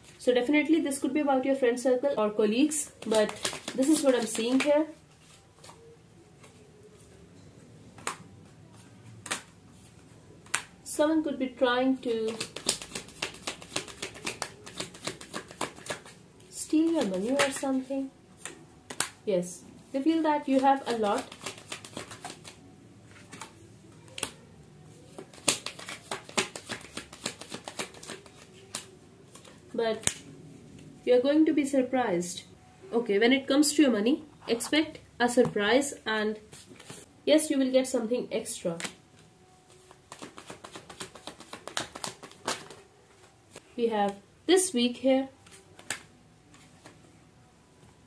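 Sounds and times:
cards clicking on tabletop: 3.0 - 4.7, 12.3 - 16.1, 20.6 - 22.6, 25.2 - 30.2, 40.1 - 42.8
card clicks and snaps: 9.2 - 9.5, 25.2 - 30.3, 45.4 - 46.1.

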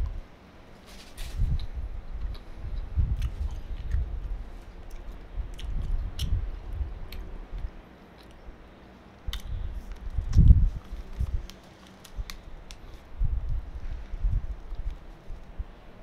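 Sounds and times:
person chewing: 1.5 - 6.4
wet mouth clicks: 4.9 - 6.4, 9.3 - 9.6.

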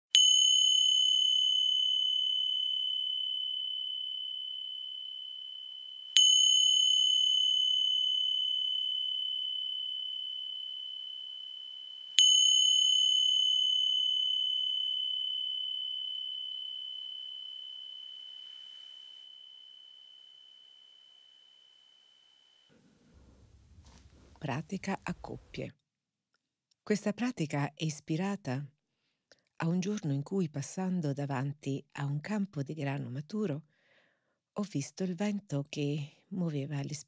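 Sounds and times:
small high-pitched bell ringing: 0.1 - 22.0.

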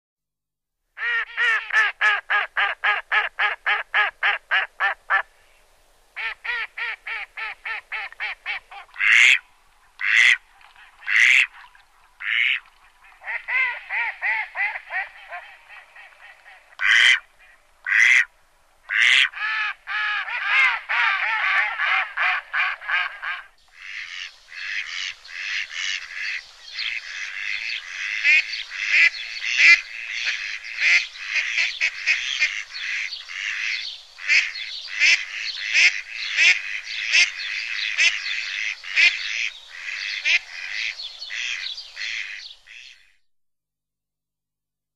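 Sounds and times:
loud duck calls: 1.0 - 5.3, 6.2 - 9.4, 10.0 - 10.4, 11.0 - 11.5, 12.2 - 18.3, 18.9 - 43.1
ducks quacking: 6.2 - 9.4, 10.0 - 18.3, 18.9 - 43.1.

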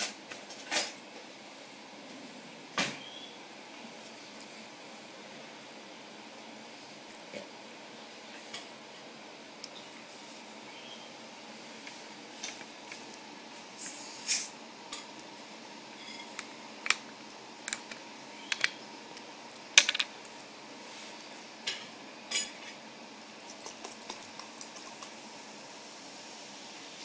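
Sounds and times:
bird beak clicking and crunching: 23.5 - 25.2.

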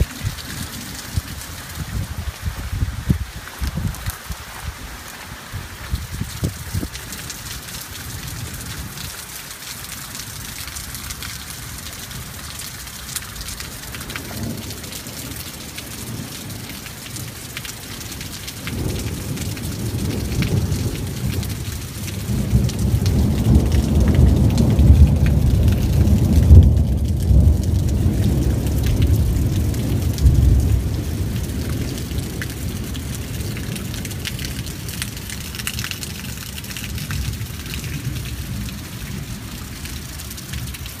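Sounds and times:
steady rain hissing: 0.0 - 41.0
rolling thunder: 18.1 - 35.4.

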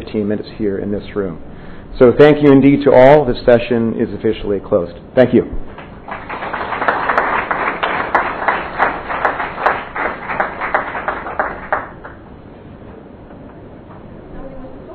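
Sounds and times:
small audience applauding: 5.7 - 12.3.

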